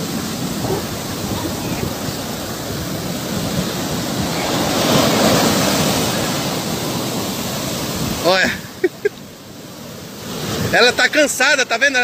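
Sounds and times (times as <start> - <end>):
ocean surf breaking on beach: 0.0 - 12.0.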